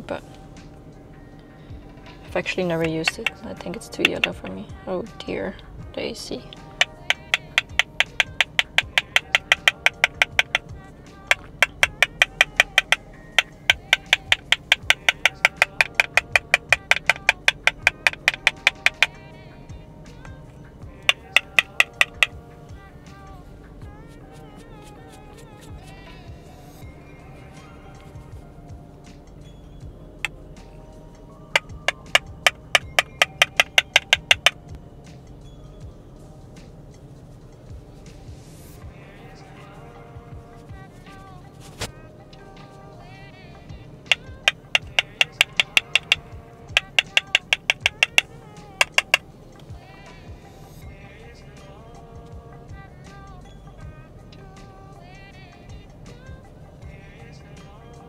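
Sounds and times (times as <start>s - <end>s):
soft background music: 0.0s - 58.0s
clicking percussive music: 2.4s - 4.4s, 6.6s - 19.2s, 21.0s - 22.4s, 31.5s - 34.7s, 44.1s - 49.7s.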